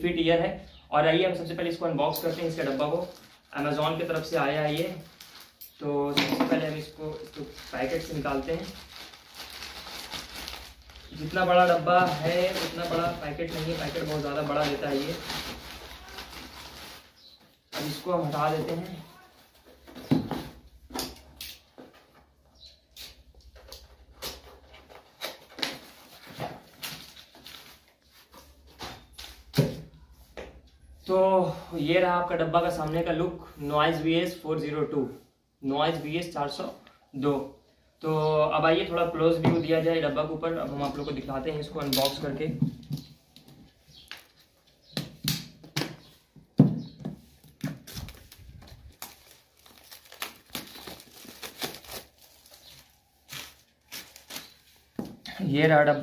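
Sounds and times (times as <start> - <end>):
plastic wrapping crinkling and tearing: 2.2 - 19.8, 24.9 - 28.3, 47.4 - 55.2
cardboard package crackling and rustling: 2.2 - 20.6, 24.1 - 29.5, 47.0 - 55.2.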